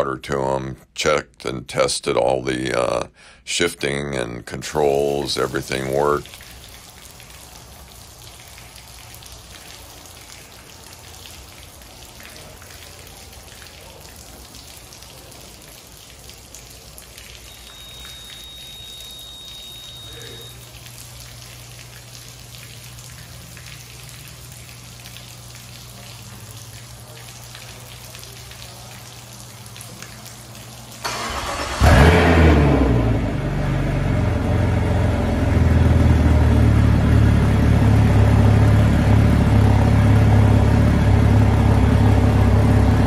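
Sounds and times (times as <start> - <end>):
water spattering on concrete: 4.8 - 42.8
thin high tone: 17.4 - 20.7
outboard engines starting: 31.0 - 43.0.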